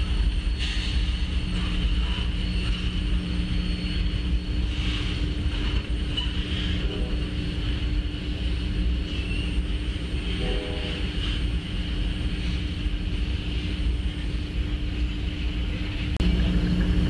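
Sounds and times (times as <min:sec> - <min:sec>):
diesel locomotives rumbling: 0:00.0 - 0:17.0.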